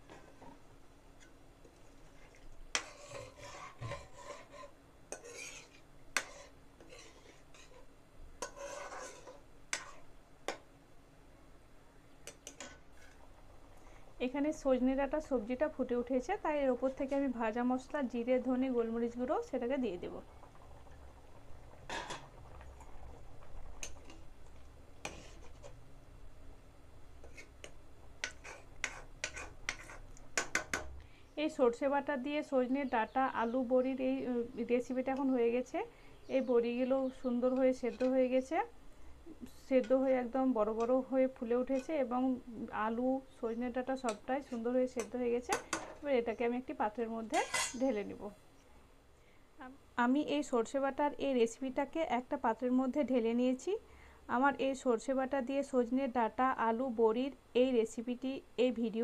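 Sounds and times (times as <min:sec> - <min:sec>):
metal ladle scraping a pan: 0:01.2 - 0:10.1, 0:12.3 - 0:14.7, 0:23.8 - 0:25.8, 0:27.2 - 0:30.8, 0:37.5 - 0:38.6, 0:41.5 - 0:42.2, 0:47.3 - 0:48.0
ladle knocking against pan: 0:30.4 - 0:30.9.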